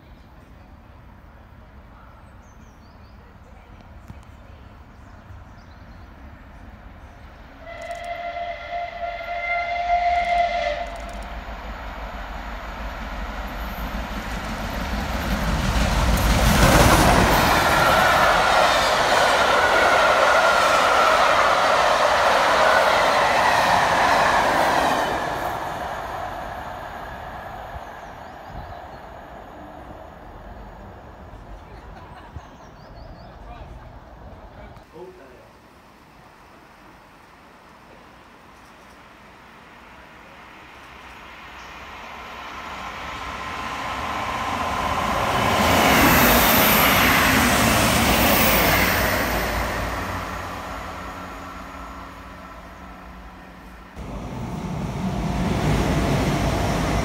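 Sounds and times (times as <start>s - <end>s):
steam locomotive whistle: 7.6s - 11.4s
rush of steam: 7.6s - 29.7s, 53.4s - 57.0s.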